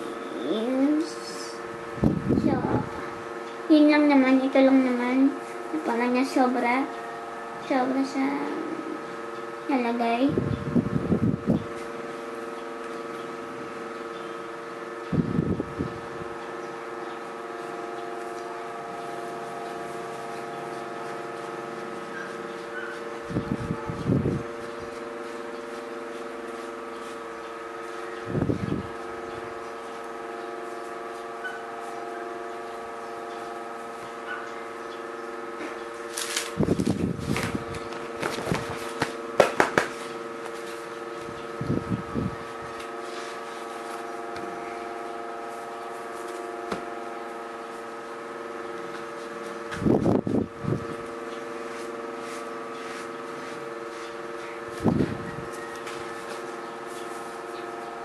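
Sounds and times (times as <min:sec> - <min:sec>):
steady hum: 0:00.0 - 0:58.0
hands rustling and tapping canvas: 0:36.8 - 0:40.8.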